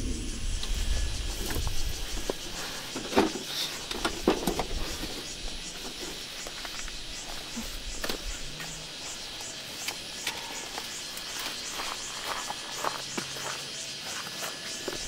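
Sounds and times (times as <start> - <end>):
low rumble: 0.0 - 2.2.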